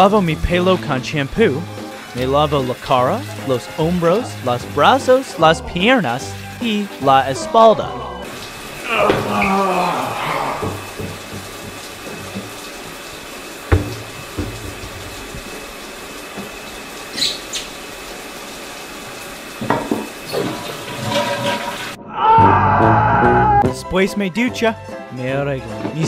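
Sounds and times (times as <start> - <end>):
water rushing: 0.0 - 22.0.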